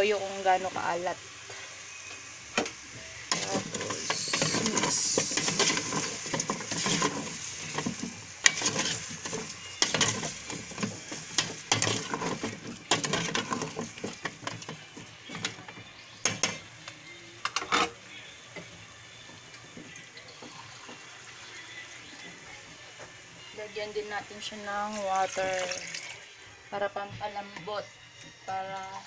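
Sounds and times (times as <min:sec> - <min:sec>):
food sizzling: 0:00.0 - 0:29.0
metal spatula scraping pot: 0:03.3 - 0:15.6
spatula clinking against pot: 0:03.3 - 0:15.6.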